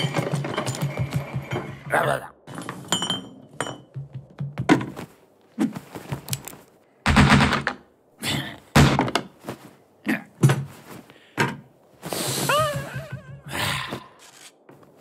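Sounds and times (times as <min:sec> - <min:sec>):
wooden thuds and knocks: 0:03.5 - 0:05.2, 0:07.0 - 0:07.8, 0:08.7 - 0:09.4, 0:10.4 - 0:11.7.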